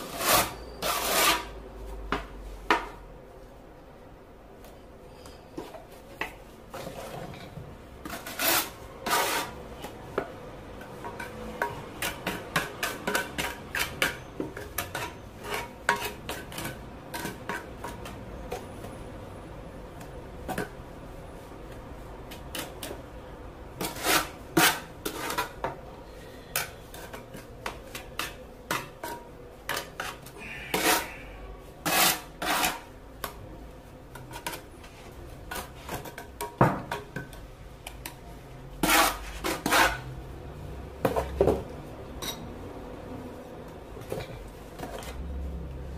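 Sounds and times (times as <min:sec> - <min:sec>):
steel trowel scraping and clinking: 0:00.0 - 0:01.6, 0:06.8 - 0:09.6, 0:11.1 - 0:18.2, 0:26.2 - 0:32.9, 0:38.8 - 0:40.1.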